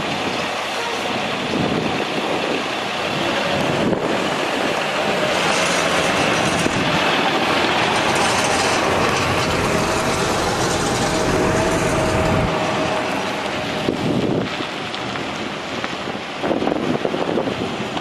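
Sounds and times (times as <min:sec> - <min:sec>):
diesel truck engine running: 0:03.2 - 0:15.8
thin steady whine: 0:03.9 - 0:15.2.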